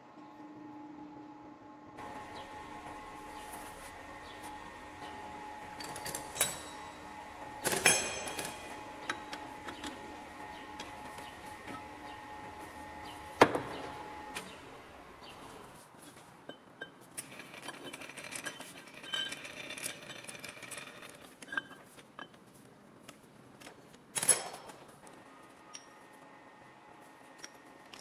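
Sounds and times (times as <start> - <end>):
metal clinks and knocks: 5.8 - 6.9, 7.7 - 9.9.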